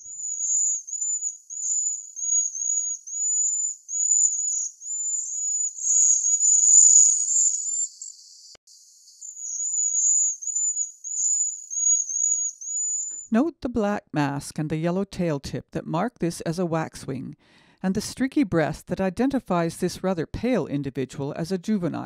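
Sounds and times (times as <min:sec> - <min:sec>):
birds calling high-pitched notes: 0:00.0 - 0:13.3.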